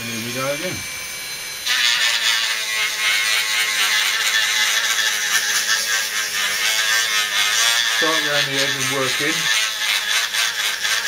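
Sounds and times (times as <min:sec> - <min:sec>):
faint motor whine: 0:00.0 - 0:11.0
rotary tool grinding glass: 0:00.1 - 0:11.0.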